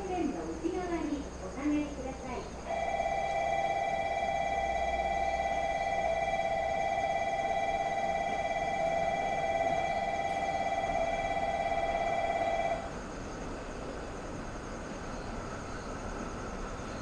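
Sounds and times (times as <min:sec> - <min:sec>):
electronic warning bell trilling: 0:02.7 - 0:12.9.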